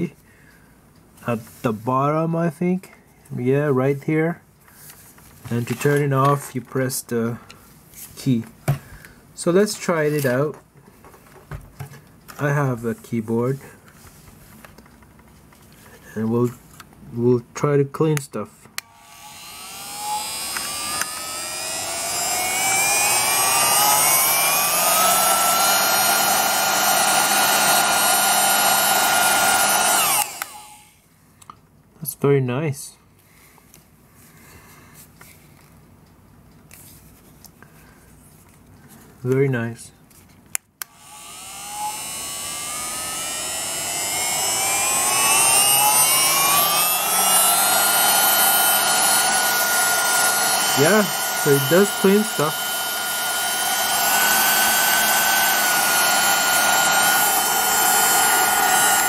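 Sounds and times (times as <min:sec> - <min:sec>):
handheld vacuum motor whine: 0:18.8 - 0:31.0, 0:40.8 - 0:59.0.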